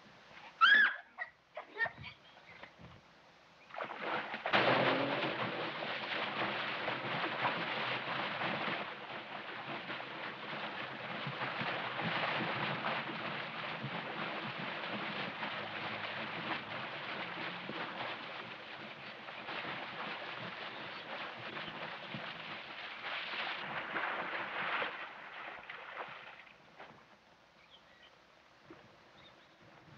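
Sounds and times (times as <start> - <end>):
water splashing from swimmer: 3.6 - 27.0.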